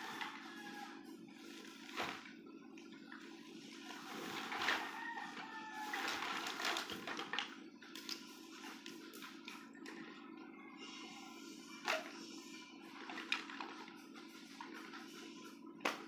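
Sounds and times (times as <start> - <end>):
plastic sack rustling and flapping: 1.5 - 2.4, 3.8 - 5.2, 5.8 - 8.2.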